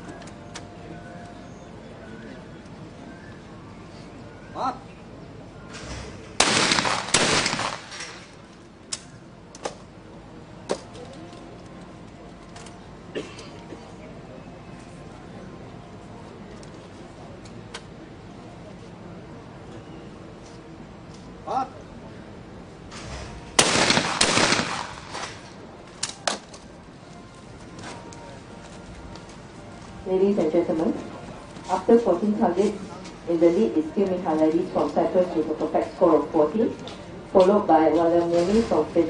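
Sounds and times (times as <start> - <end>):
shotgun shots echoing: 6.4 - 8.4, 23.5 - 25.6.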